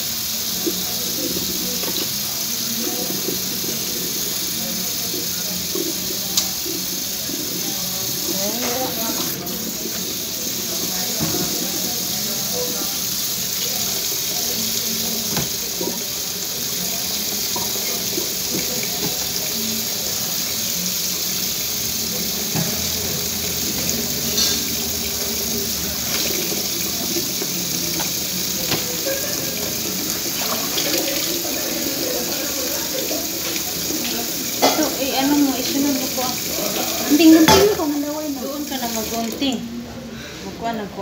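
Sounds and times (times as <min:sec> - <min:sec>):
tap running into steel sink: 0:15.3 - 0:16.0, 0:27.0 - 0:29.0.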